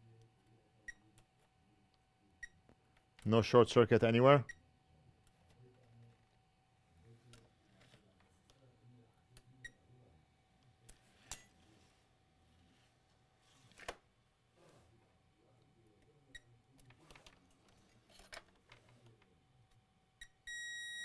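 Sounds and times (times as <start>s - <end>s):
multimeter continuity beep: 20.2s - 21.0s.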